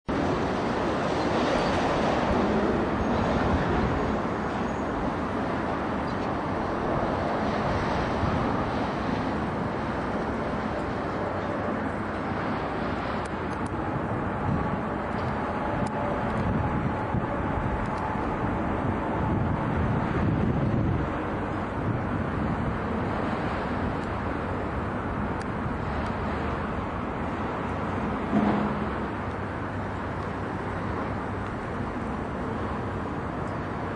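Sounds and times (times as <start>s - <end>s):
outdoor rumble and hiss: 0.0s - 33.9s
light ticks: 13.2s - 13.8s.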